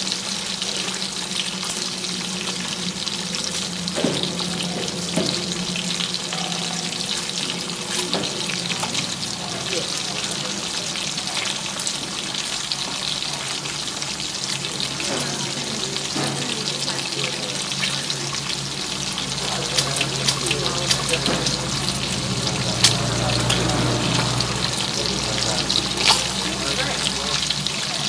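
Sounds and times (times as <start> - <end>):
low electronic drone: 0.8 - 11.9, 18.4 - 27.7.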